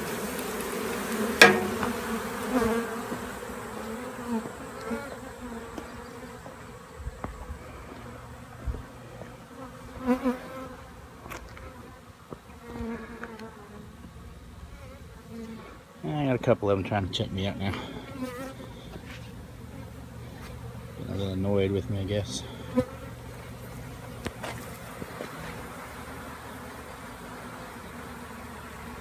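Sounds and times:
bees buzzing in flight: 0:00.0 - 0:16.2, 0:17.4 - 0:29.0
sharp knock: 0:01.4 - 0:02.1.

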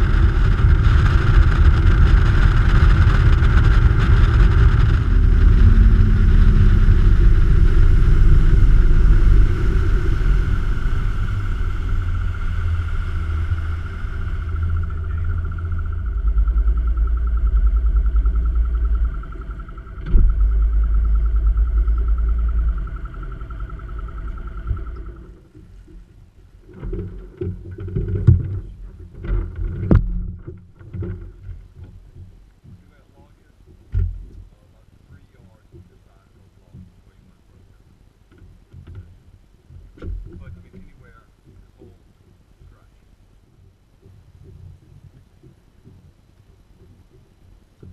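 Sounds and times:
boat motor running: 0:00.0 - 0:47.9
faint voices: 0:13.8 - 0:18.6
knocks on boat: 0:33.9 - 0:34.5.

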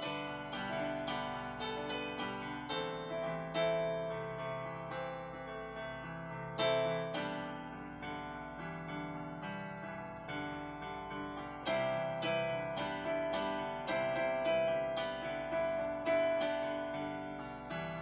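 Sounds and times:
digital piano chords: 0:00.0 - 0:18.0.

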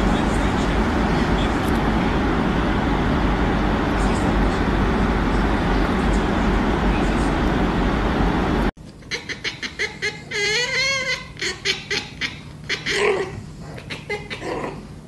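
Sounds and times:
loud rushing noise: 0:00.0 - 0:08.7.

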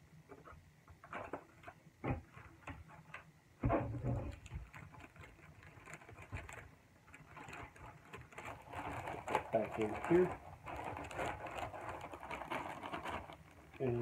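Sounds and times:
plastic bags crinkling: 0:04.1 - 0:14.0.

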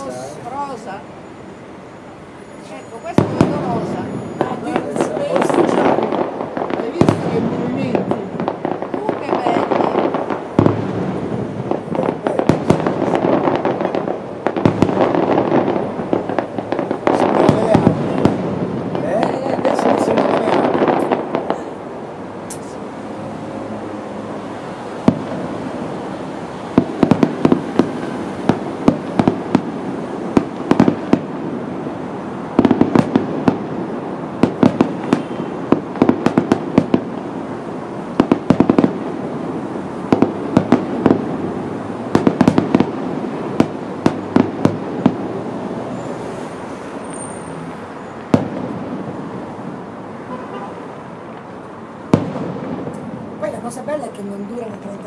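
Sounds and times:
firework shells bursting: 0:26.7 - 0:31.7, 0:32.5 - 0:37.4, 0:38.1 - 0:39.2, 0:40.0 - 0:46.5.

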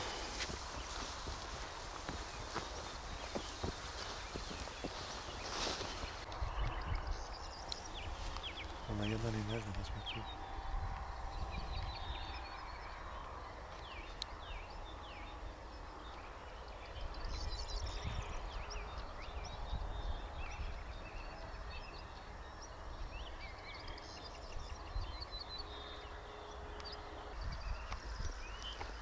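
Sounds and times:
steady low rumble: 0:00.0 - 0:21.8
small birds chirping: 0:00.0 - 0:29.0.

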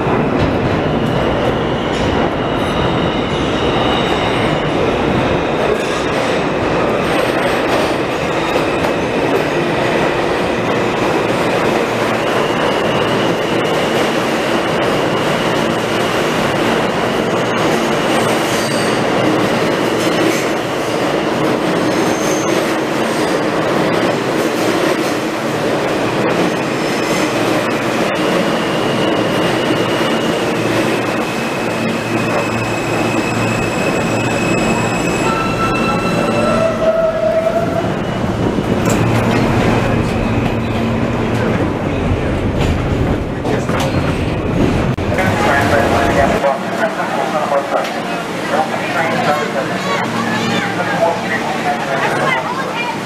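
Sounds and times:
train wheels rumbling on rail: 0:00.0 - 0:53.0
high wheel squeal: 0:12.0 - 0:19.2, 0:21.8 - 0:23.4, 0:28.1 - 0:40.9.

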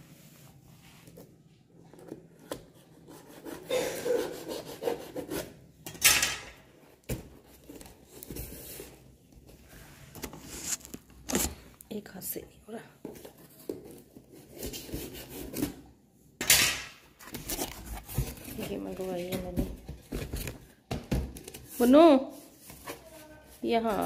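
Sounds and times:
packaging rubbing and scraping: 0:07.5 - 0:11.7, 0:17.2 - 0:20.7.

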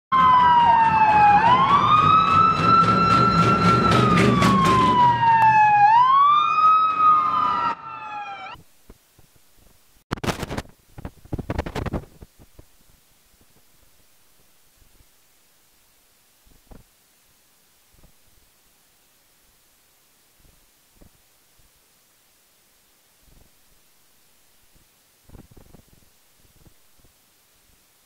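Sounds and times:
police siren wailing: 0:00.1 - 0:08.6
vehicle engine and road noise: 0:00.2 - 0:05.3.

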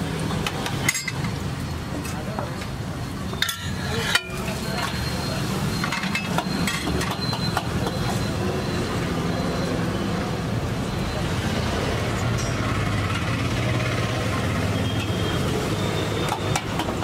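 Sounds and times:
metal spatulas clacking on griddle: 0:03.4 - 0:05.0.

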